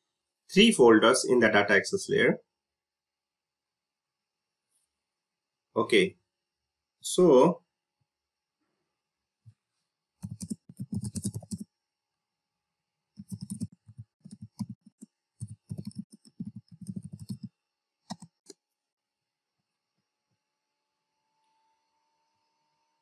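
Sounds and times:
computer keyboard typing: 10.2 - 11.6, 13.2 - 17.5, 18.1 - 18.5.

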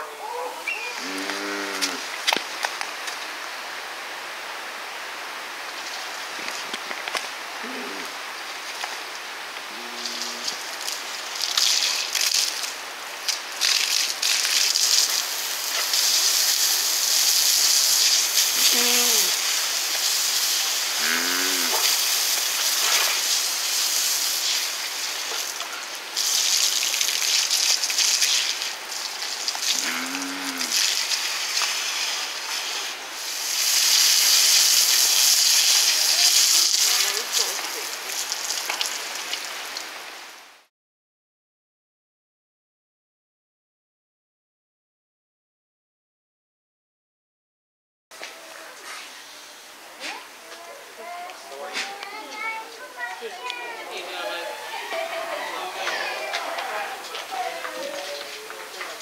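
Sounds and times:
rushing water hiss: 0.1 - 40.7, 48.2 - 59.0
seals moaning: 29.8 - 30.8.

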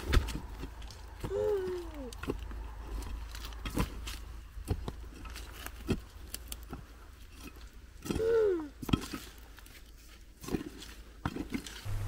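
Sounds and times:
toddler vocal sound: 8.1 - 8.7.

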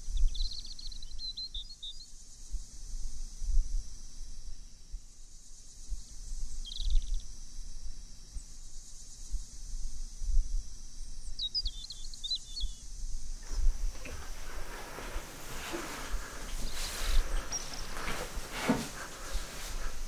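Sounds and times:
small birds chirping: 0.1 - 2.1, 6.6 - 7.2, 11.4 - 20.0
steady high hiss: 12.9 - 20.0.

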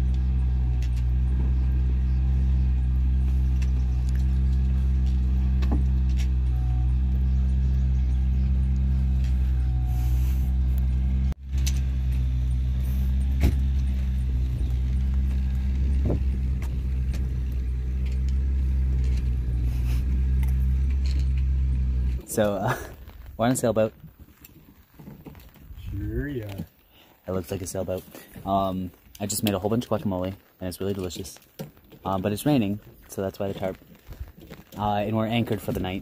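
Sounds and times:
low motor hum: 0.0 - 26.6.

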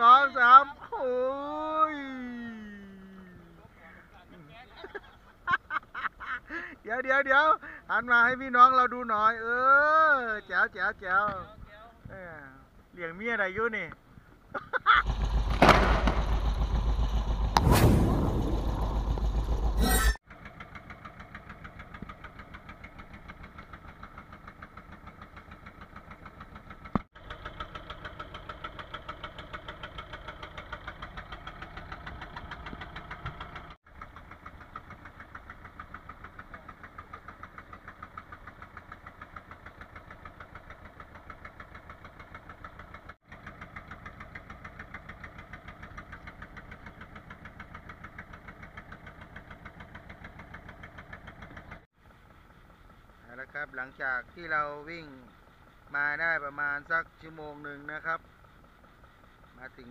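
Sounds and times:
boat engine chugging: 18.5 - 59.9.

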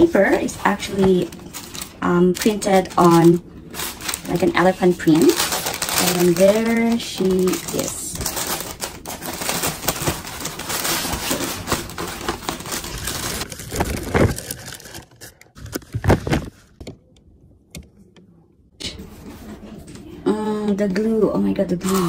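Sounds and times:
tissue paper rustling: 0.0 - 16.8.

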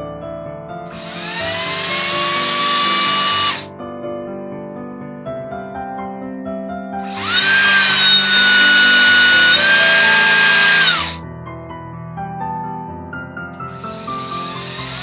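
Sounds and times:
impact driver motor whine: 1.0 - 3.6, 7.0 - 11.2, 13.8 - 15.0.

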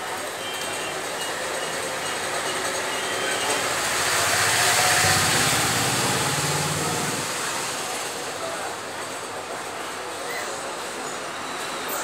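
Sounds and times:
vehicle passing by: 3.6 - 8.2.

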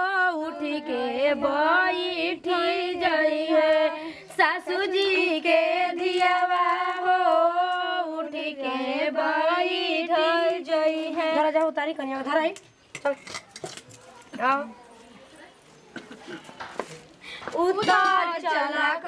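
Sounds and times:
women singing folk song: 0.0 - 12.6, 17.4 - 19.0.

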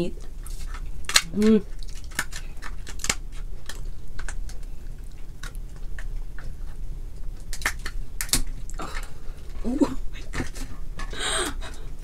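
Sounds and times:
crab shell snipped and cracked: 1.1 - 4.5, 7.4 - 8.5.

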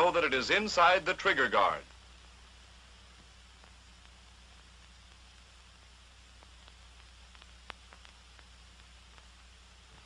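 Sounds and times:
film soundtrack hiss: 0.0 - 10.0
faint clicks: 3.1 - 5.5, 6.3 - 10.0.

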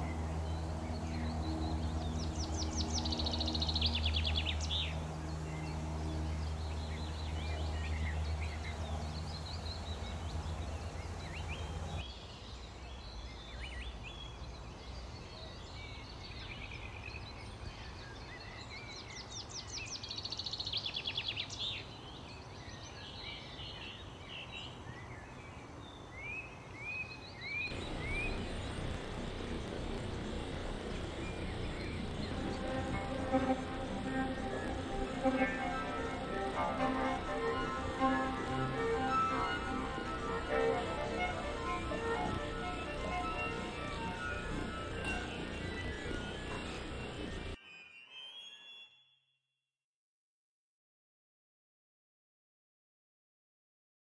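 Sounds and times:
steady low hum: 0.0 - 12.0, 27.7 - 47.6
small birds singing: 0.0 - 49.0.

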